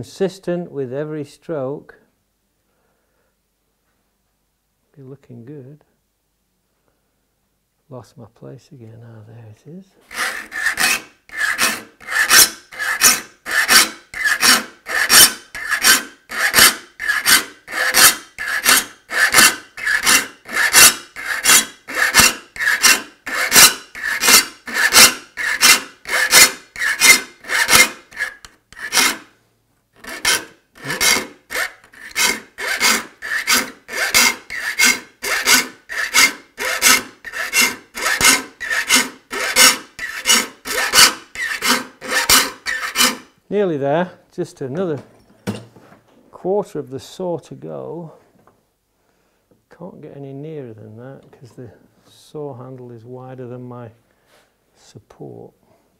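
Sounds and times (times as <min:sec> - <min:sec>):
file rasping across saw teeth: 0:10.1 - 0:29.3, 0:30.0 - 0:43.4.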